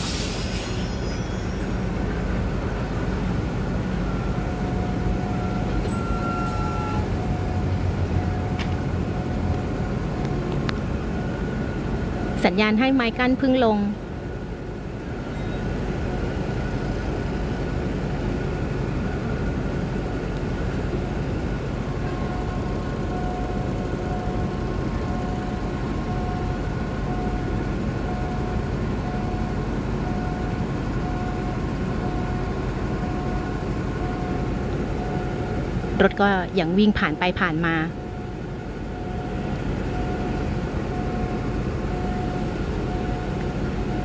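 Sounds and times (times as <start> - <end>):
diesel train idling: 0.0 - 44.0
level crossing warning beeps: 3.6 - 14.0, 21.1 - 44.0.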